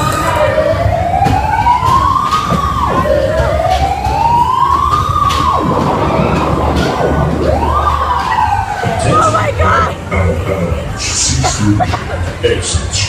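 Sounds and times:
siren-like wail: 0.0 - 9.9.

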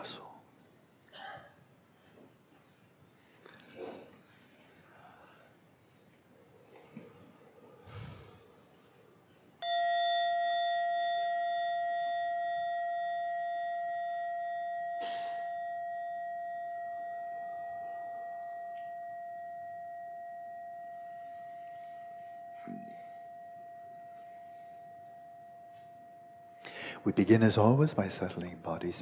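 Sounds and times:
meditation bell ringing: 9.6 - 27.8.

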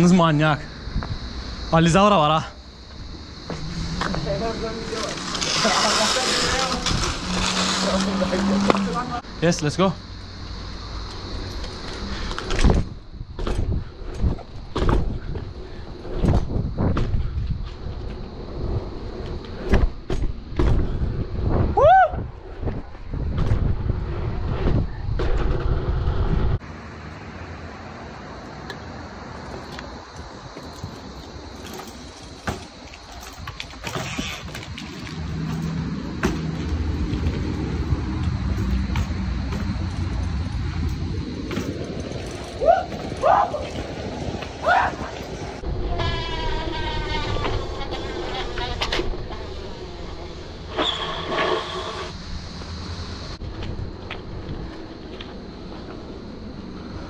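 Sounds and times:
bike tyres rolling on concrete: 2.4 - 9.8, 28.7 - 57.0
bike knocking and rattling: 29.4 - 45.4.

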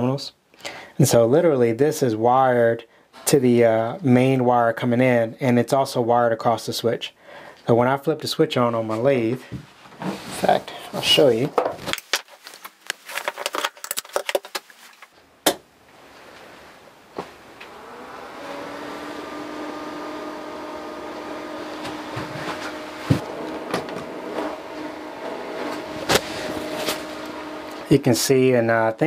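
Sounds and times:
handling clicks and rustle: 11.0 - 15.2
cooling fan whirring: 16.9 - 28.5.

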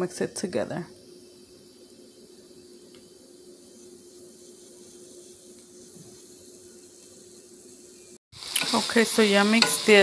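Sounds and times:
frying pan hiss: 0.0 - 10.0.

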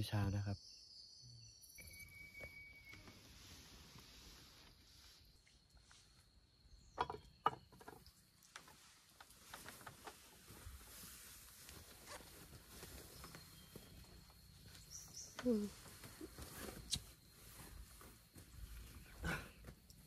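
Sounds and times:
faint high insect chirr: 0.0 - 20.0
small clicks and rustles: 7.8 - 20.0.

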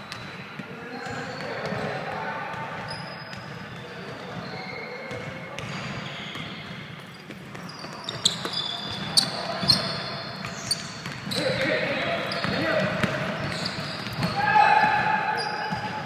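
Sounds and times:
sneakers squeaking on gym floor: 0.0 - 16.0
basketball bouncing: 5.1 - 16.0.

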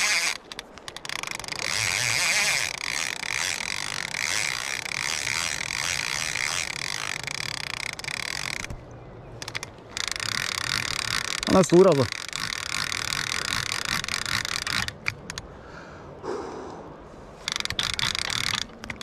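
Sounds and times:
fly reel drag ratcheting: 0.0 - 8.8, 9.4 - 15.5, 17.4 - 19.0.

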